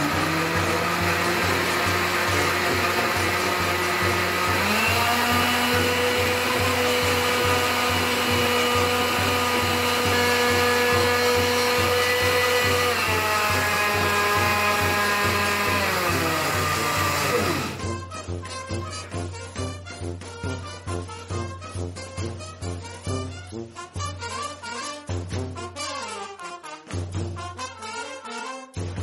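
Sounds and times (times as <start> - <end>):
electric blender running: 0.0 - 18.0
background music with steady beat: 17.8 - 29.0.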